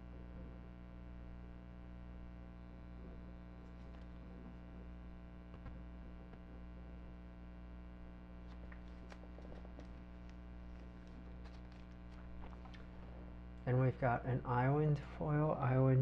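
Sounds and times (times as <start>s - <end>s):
low electrical hum: 0.0s - 16.0s
plastic sleeve rustling: 8.4s - 13.3s.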